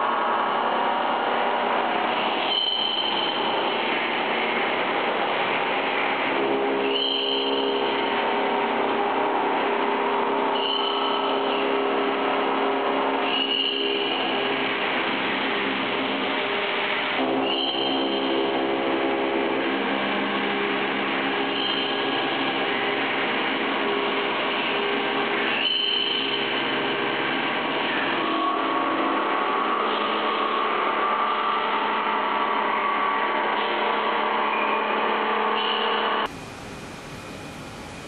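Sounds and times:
milling machine whine: 36.3s - 38.0s
steady hiss: 36.3s - 38.0s.

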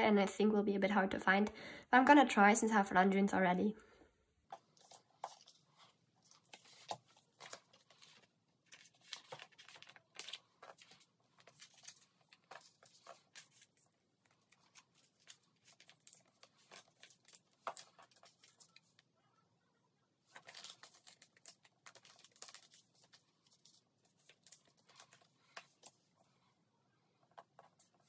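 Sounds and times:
plastic sleeves crinkling: 4.5s - 19.0s, 20.2s - 26.1s.

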